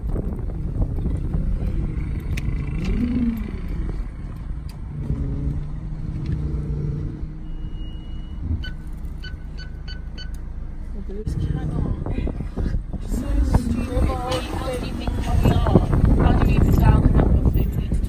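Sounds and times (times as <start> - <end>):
car engine and road rumble: 0.0 - 18.0.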